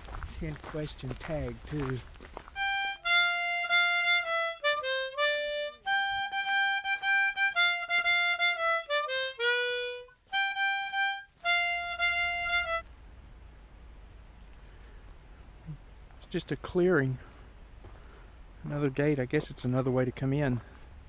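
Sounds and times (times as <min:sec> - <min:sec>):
faint low rumble: 0:00.0 - 0:02.8, 0:12.8 - 0:21.0
harmonica tune: 0:02.6 - 0:12.8.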